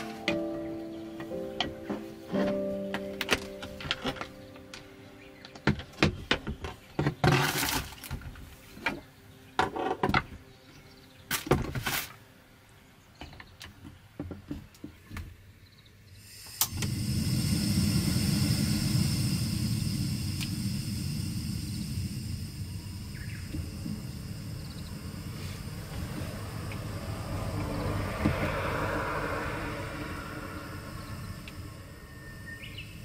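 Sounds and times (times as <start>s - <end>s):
gas burner flame hissing: 16.2s - 33.0s
gas stove ignition click: 16.5s - 17.1s.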